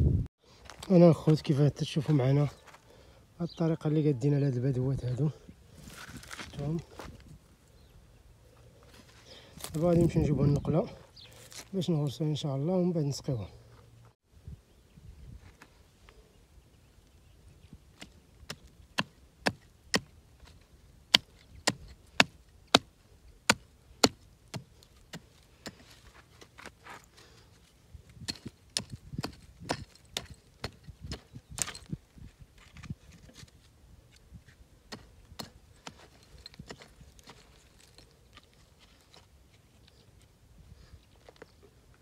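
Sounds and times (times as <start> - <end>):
hoe striking stony soil: 18.0 - 32.0, 32.6 - 39.3.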